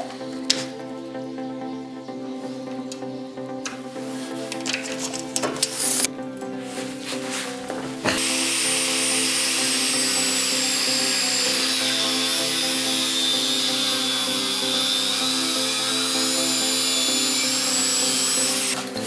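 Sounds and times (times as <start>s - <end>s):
background music: 0.0s - 19.0s
angle grinder cutting metal: 8.1s - 19.0s.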